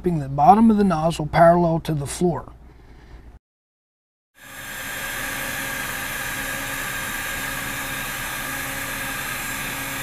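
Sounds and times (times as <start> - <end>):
hot-air welding gun hissing: 4.4 - 10.0.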